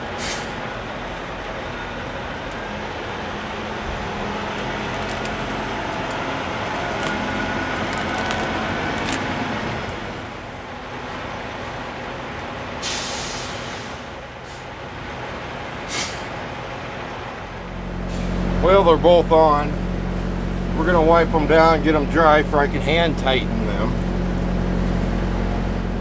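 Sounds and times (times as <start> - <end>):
diesel truck engines running: 0.0 - 26.0
short air hisses: 0.2 - 0.6, 12.8 - 14.7, 15.9 - 16.3, 18.1 - 18.4.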